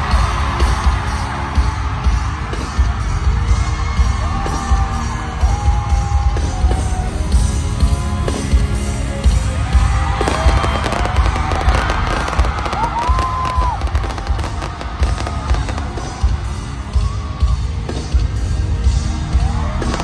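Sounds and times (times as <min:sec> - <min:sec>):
live pop music over speakers: 0:00.0 - 0:20.0
fireworks popping and crackling: 0:10.1 - 0:16.4.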